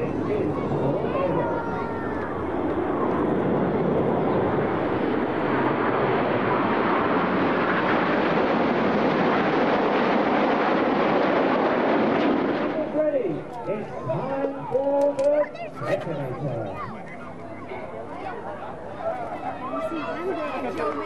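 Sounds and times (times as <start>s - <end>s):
jet aircraft passing overhead: 0.0s - 14.7s.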